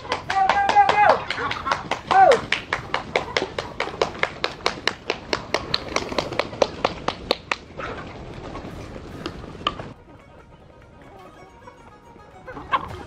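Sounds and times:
hands clapping rapidly: 0:00.0 - 0:07.7.

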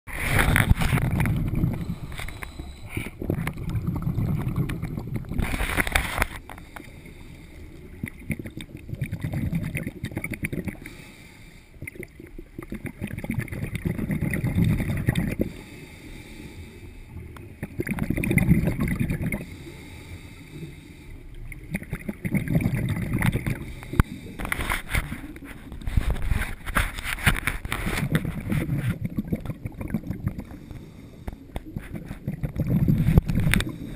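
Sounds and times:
exhaled bubbles rushing: 0:00.1 - 0:06.4, 0:07.7 - 0:10.9, 0:11.8 - 0:15.6, 0:17.4 - 0:19.5, 0:21.4 - 0:26.9, 0:27.8 - 0:30.6, 0:31.6 - 0:33.9
regulator inhale hiss: 0:01.7 - 0:03.2, 0:06.5 - 0:07.8, 0:10.8 - 0:11.8, 0:15.5 - 0:17.2, 0:19.4 - 0:21.3, 0:23.6 - 0:24.6, 0:30.4 - 0:31.6.

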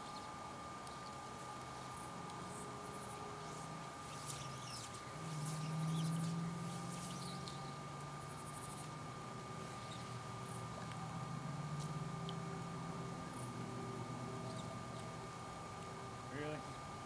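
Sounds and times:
insect trills: 0:00.0 - 0:16.9
low hum: 0:00.0 - 0:17.0
thin whine: 0:00.0 - 0:17.0
bird chirps: 0:04.1 - 0:07.8, 0:09.7 - 0:10.2, 0:14.4 - 0:14.8.

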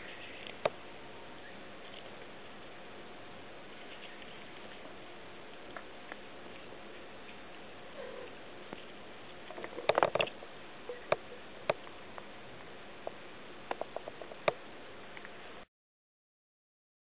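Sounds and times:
cat chewing a plant stalk: 0:03.6 - 0:10.3.

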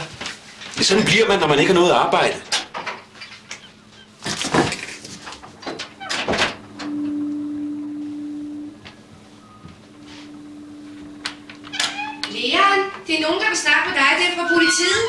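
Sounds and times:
steady low tone: 0:06.6 - 0:13.0.

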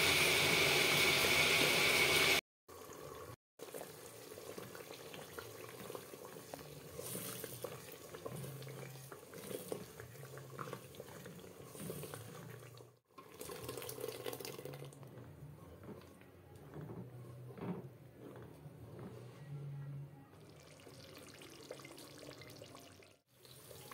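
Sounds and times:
wooden spatula stirring in pot: 0:03.6 - 0:21.8.

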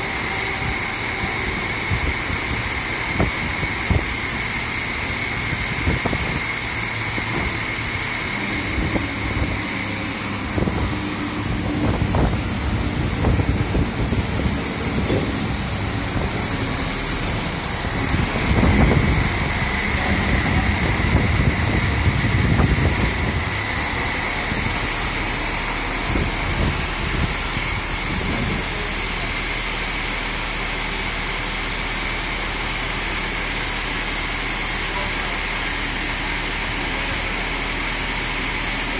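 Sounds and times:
truck engine idling: 0:00.0 - 0:38.9
wind rumbling on microphone: 0:00.6 - 0:25.2, 0:25.9 - 0:28.9.

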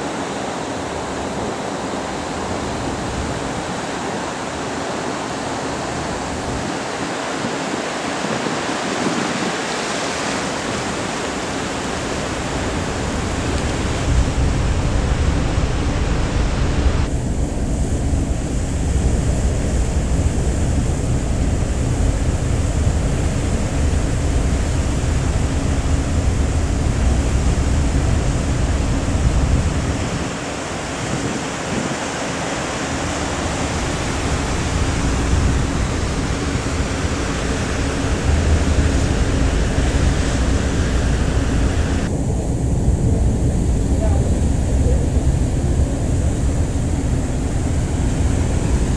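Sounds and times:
sea water rushing past hull: 0:00.0 - 0:48.9
wind buffeting microphone: 0:00.0 - 0:48.9
low steady hum: 0:32.9 - 0:48.9.

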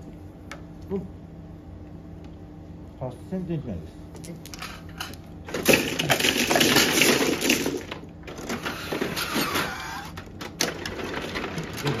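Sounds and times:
plastic tiles clattering: 0:04.5 - 0:12.0.

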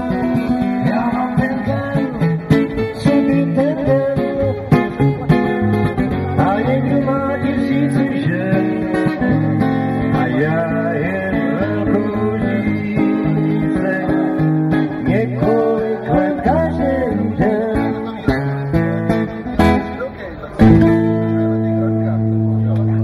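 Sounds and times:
man singing: 0:00.0 - 0:05.4, 0:06.1 - 0:18.9
acoustic guitar strummed: 0:00.0 - 0:23.0.

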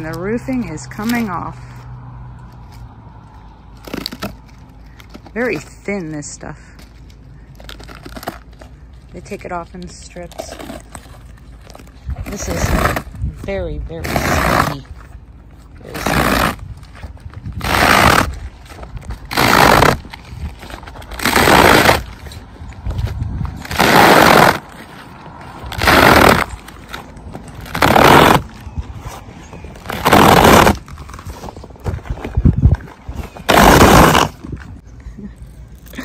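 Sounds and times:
rubber roofing membrane tearing: 0:03.8 - 0:05.7, 0:07.6 - 0:08.8, 0:10.2 - 0:34.8.

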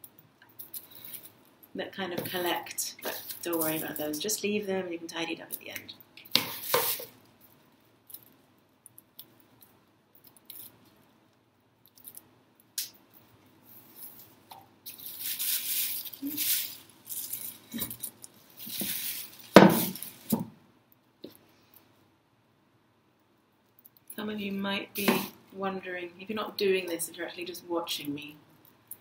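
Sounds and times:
plastic bag crinkling: 0:03.0 - 0:04.2, 0:13.8 - 0:20.4.

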